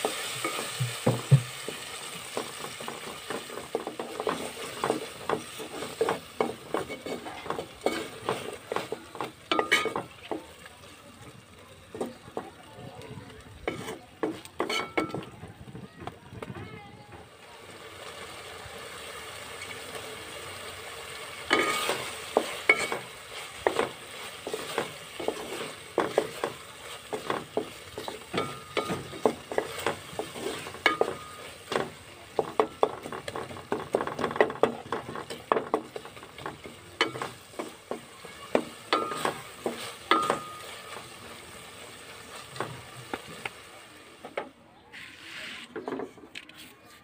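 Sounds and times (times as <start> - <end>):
spatula knocking and scraping pot: 0.0 - 10.5, 13.6 - 15.5, 21.5 - 41.2
chutney sizzling in pot: 0.0 - 46.0.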